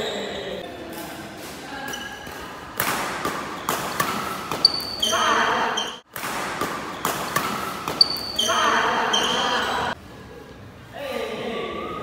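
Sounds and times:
racket striking shuttlecock: 0.9s - 9.4s
sneakers squeaking on court: 1.8s - 10.0s
players' voices: 7.4s - 10.0s.

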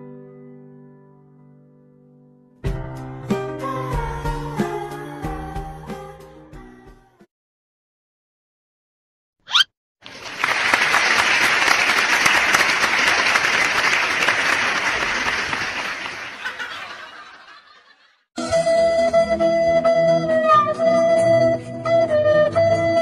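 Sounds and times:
brief swish: 9.5s - 9.7s
crowd applause: 10.0s - 17.8s.

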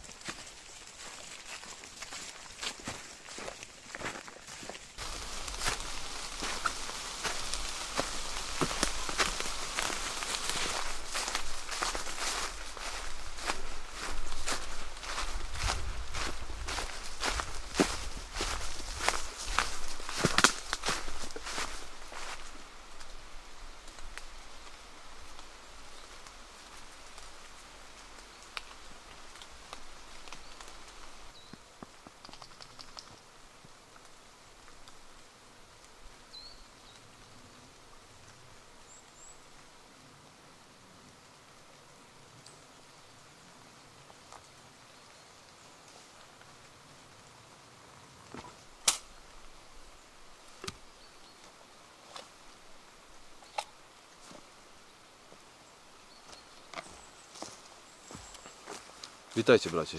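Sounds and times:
faint hiss: 0.0s - 59.9s
rain in a forest: 0.0s - 59.9s
raindrops pattering: 5.0s - 22.3s.

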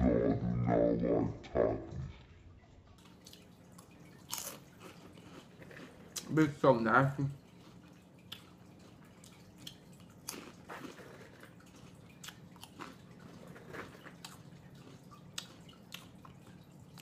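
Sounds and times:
person chewing crunchy snacks: 4.2s - 6.4s, 7.4s - 17.0s.

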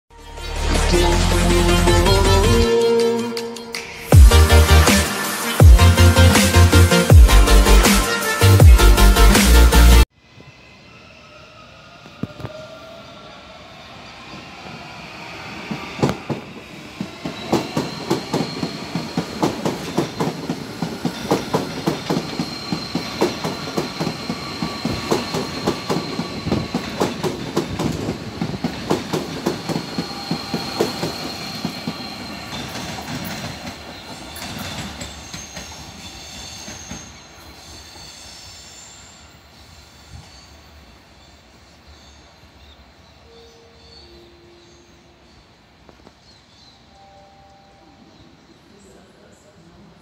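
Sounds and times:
train high whine: 0.1s - 50.0s
train wheels clattering: 15.6s - 38.1s.

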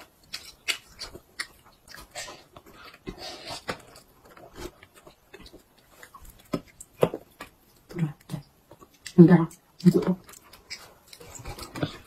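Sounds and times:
toddler chewing meat: 0.0s - 12.0s.

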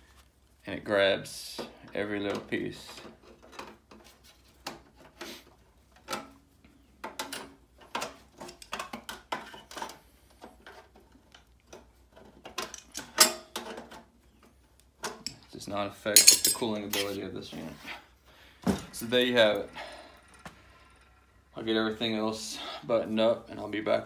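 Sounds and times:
tool clinking on sheet metal: 16.1s - 17.2s.

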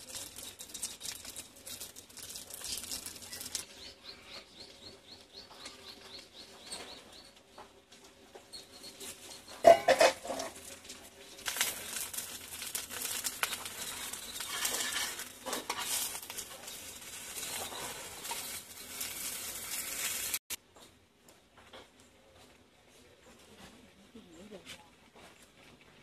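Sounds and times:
pancake sizzling in hot oil: 0.0s - 3.8s, 8.8s - 20.6s
spatula scraping: 8.7s - 20.4s
metal pan lid clatter: 9.6s - 10.6s.

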